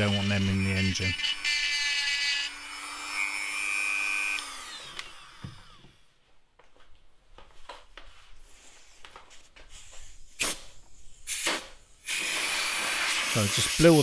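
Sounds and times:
rotary tool whining: 0.0s - 6.0s.

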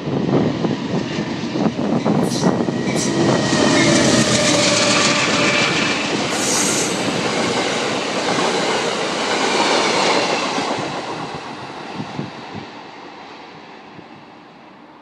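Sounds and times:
train wheels rumbling on rails: 0.0s - 14.3s
diesel locomotive passing: 0.0s - 15.0s
high-pitched squeal: 2.2s - 7.2s.

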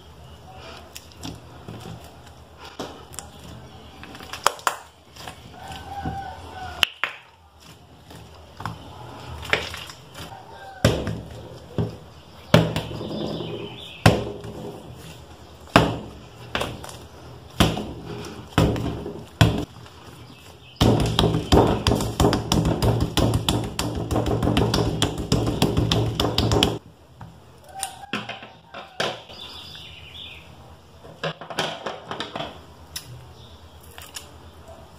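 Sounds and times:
slime squishing: 0.2s - 26.8s.

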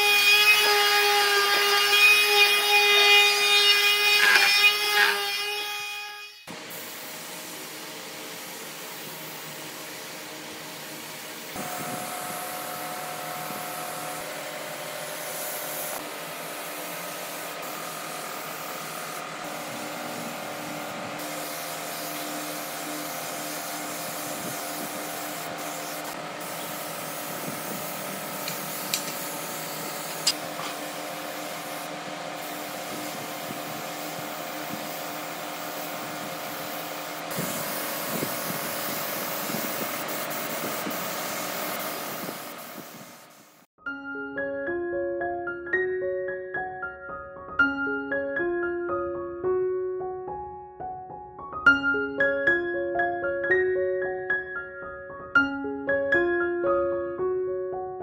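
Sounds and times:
power tool motor running: 0.3s - 5.9s.

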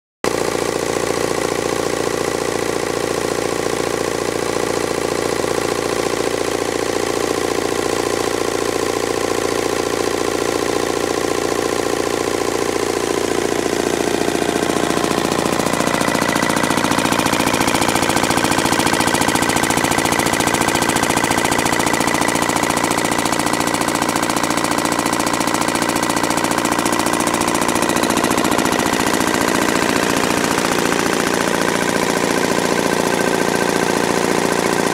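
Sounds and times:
diesel engine running: 0.3s - 34.9s.

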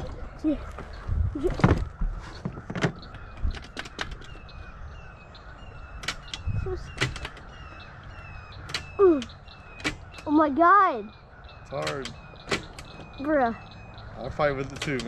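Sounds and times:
bird chirping: 0.0s - 15.0s
sharp clicks and knocks: 1.5s - 4.5s, 6.0s - 7.6s, 8.6s - 10.4s, 11.7s - 13.2s, 14.6s - 15.0s.

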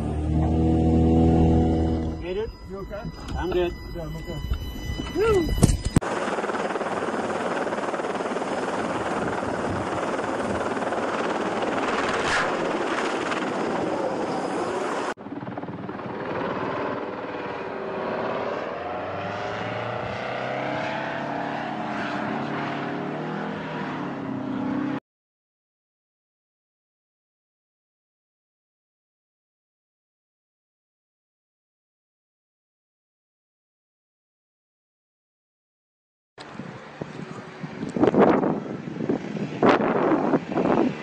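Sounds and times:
aircraft engines and propellers: 0.0s - 25.0s, 36.4s - 41.0s
helicopter rotor and turbine: 0.1s - 25.0s, 36.4s - 41.0s.

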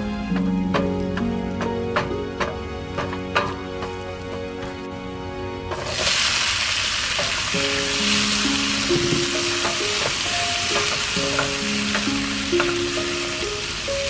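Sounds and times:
hot oil sizzling in a frying pan: 5.8s - 14.0s.

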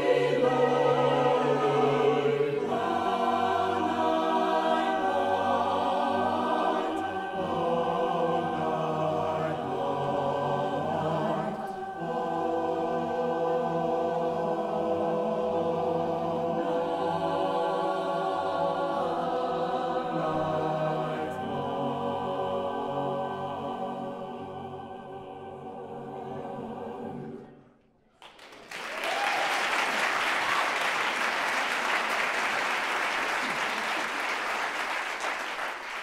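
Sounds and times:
mixed choir singing: 0.0s - 27.7s.

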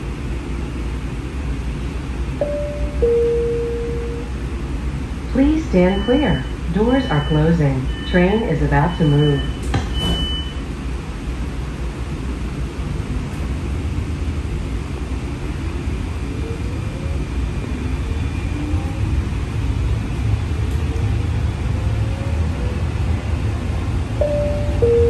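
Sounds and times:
streetcar low rumble: 0.0s - 25.0s.

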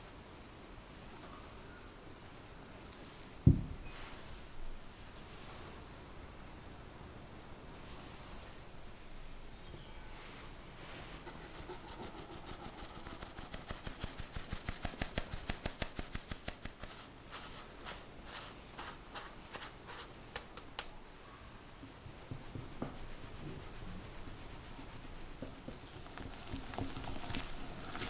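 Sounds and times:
spatula scraping mesh: 11.0s - 20.8s
powder falling through mesh: 12.4s - 21.0s, 25.7s - 28.0s.

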